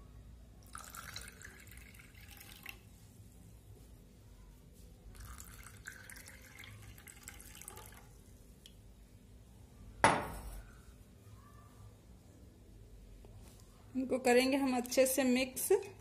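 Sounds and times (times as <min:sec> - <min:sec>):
water pouring into glass: 0:00.6 - 0:02.8, 0:05.1 - 0:08.1.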